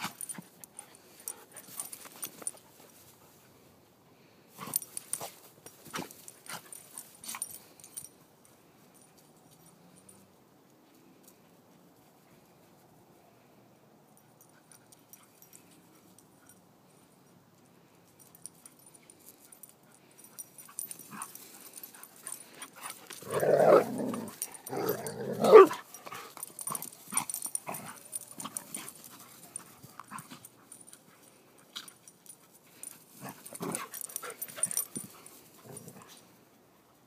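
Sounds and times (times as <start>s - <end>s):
dogs growling and yipping: 20.8s - 29.0s, 33.2s - 36.2s.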